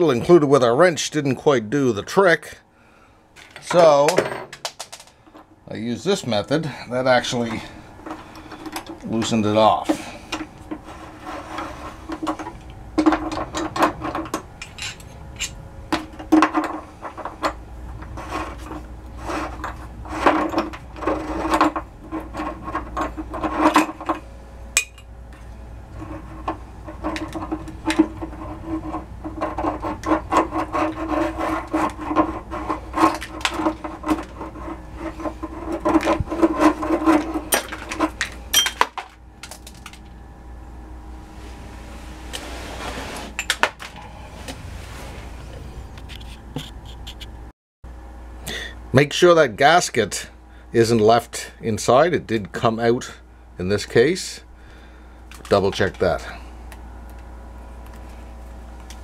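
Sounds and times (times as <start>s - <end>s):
metal threads scraping and rasping: 6.2s - 40.0s.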